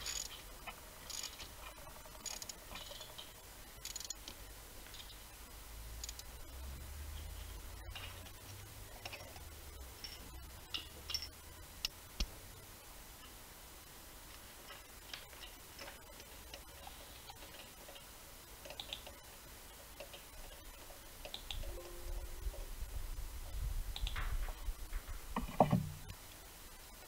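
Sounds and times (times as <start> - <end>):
ratchet wrench clicking: 0.0 - 0.4, 1.0 - 1.4, 2.1 - 3.0, 3.8 - 4.3, 6.0 - 6.2.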